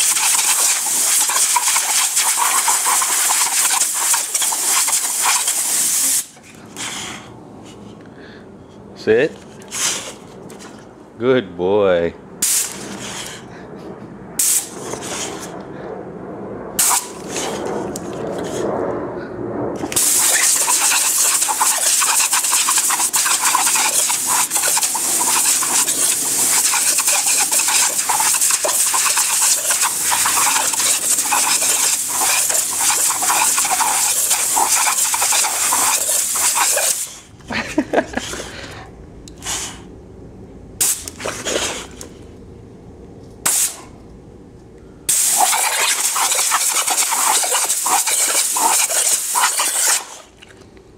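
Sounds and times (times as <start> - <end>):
compressed air blasts: 0.0 - 7.1, 12.4 - 13.4, 14.4 - 15.5, 16.8 - 17.6, 19.8 - 37.3, 40.8 - 42.0, 43.4 - 44.0, 45.1 - 50.3
dog sounds: 20.0 - 37.1, 45.3 - 50.3.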